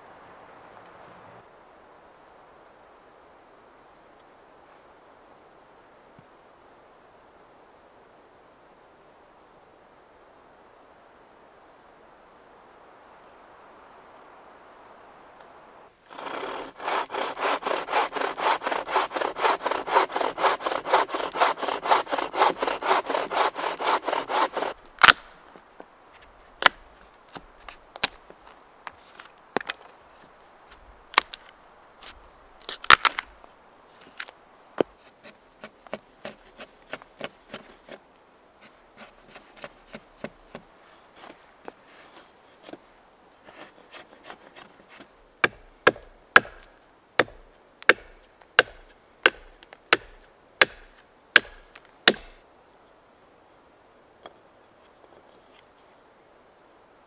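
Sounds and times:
saw cutting through log: 0:16.1 - 0:24.8, 0:43.5 - 0:52.4
blade scraping wood: 0:16.1 - 0:25.2, 0:34.0 - 0:38.0, 0:38.6 - 0:42.8, 0:43.4 - 0:52.4
billhook cracking and knocking wood: 0:23.3 - 0:25.3, 0:31.2 - 0:33.3, 0:44.0 - 0:52.4.

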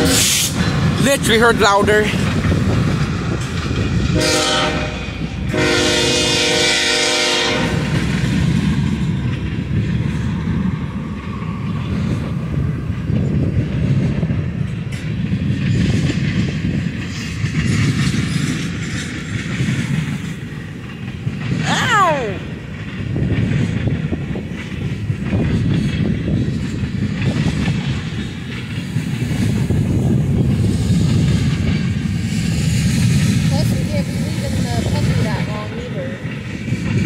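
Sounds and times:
train horn blasts: 0:00.0 - 0:00.5, 0:04.1 - 0:08.0
train wheel rumble and rail clatter: 0:00.0 - 0:37.0.

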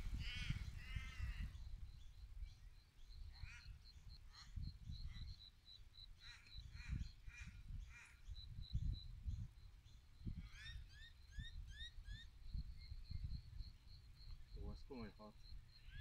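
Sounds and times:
birds chirping: 0:00.0 - 0:16.0
harsh caw-like bird calls: 0:00.2 - 0:01.6, 0:03.3 - 0:04.5, 0:06.2 - 0:08.3.

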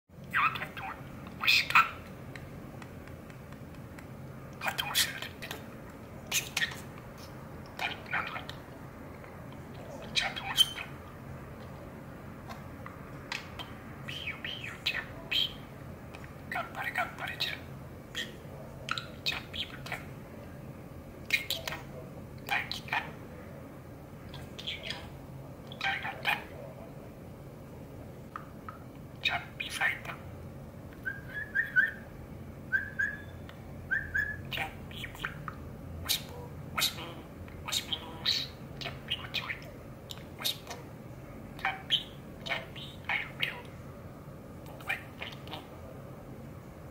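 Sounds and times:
budgerigar chattering: 0:00.3 - 0:02.1, 0:10.1 - 0:11.1, 0:24.3 - 0:26.5, 0:34.2 - 0:40.9, 0:41.6 - 0:43.7
budgerigar warbling: 0:00.3 - 0:02.1, 0:10.1 - 0:11.1, 0:34.2 - 0:40.9, 0:41.6 - 0:43.7
budgerigar whistling: 0:31.0 - 0:32.1, 0:32.7 - 0:35.5.

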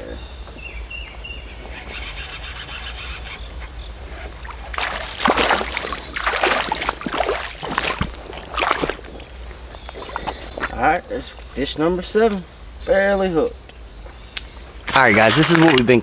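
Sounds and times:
crickets droning: 0:00.0 - 0:16.0
fish splashing in water: 0:04.3 - 0:10.6.

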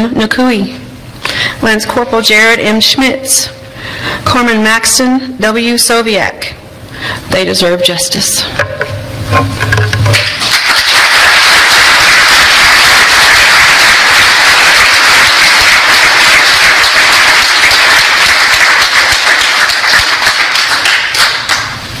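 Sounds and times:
crowd applauding: 0:10.2 - 0:21.9.

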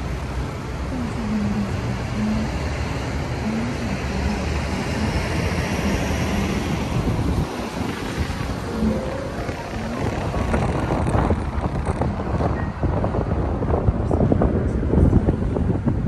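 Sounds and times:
road noise: 0:00.0 - 0:16.0
vehicle rumble: 0:00.0 - 0:16.0.

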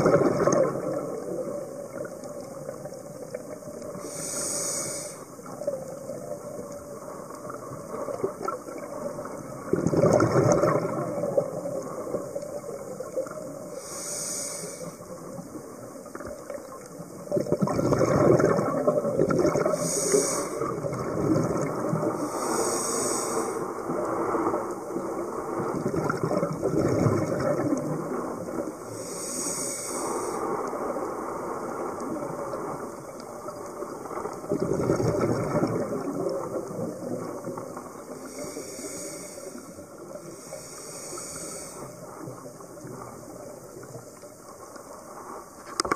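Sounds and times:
exhaled bubbles rushing underwater: 0:00.0 - 0:45.9
regulator inhalation hiss: 0:03.9 - 0:05.5, 0:13.7 - 0:15.2, 0:19.6 - 0:20.7, 0:22.1 - 0:23.8, 0:28.9 - 0:30.6, 0:38.1 - 0:42.3.

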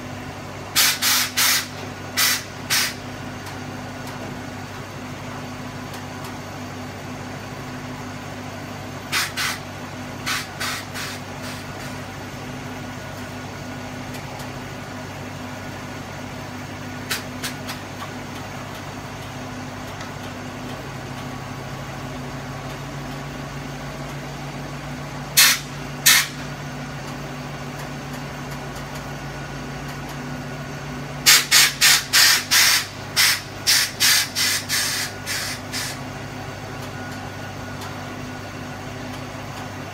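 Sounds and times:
engine idling: 0:00.0 - 0:39.9
air suspension hiss bursts: 0:00.8 - 0:03.0, 0:09.1 - 0:12.0, 0:25.4 - 0:26.4, 0:31.3 - 0:36.0.

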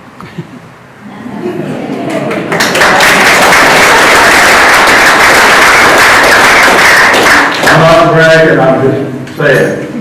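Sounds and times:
audience applauding: 0:01.9 - 0:08.3.

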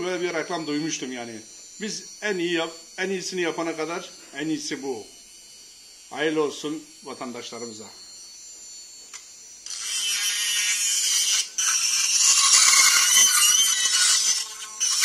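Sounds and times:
grinder motor whining: 0:00.0 - 0:15.0
high rasping metal grind: 0:09.6 - 0:15.0.

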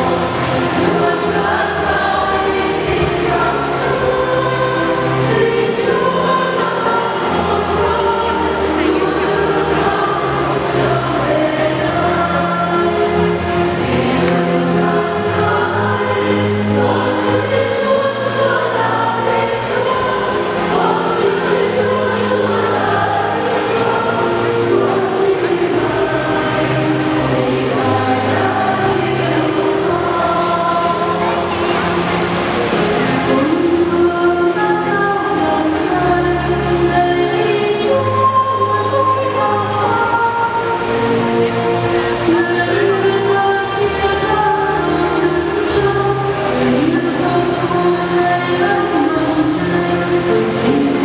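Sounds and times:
choir singing a hymn: 0:00.0 - 0:51.0.

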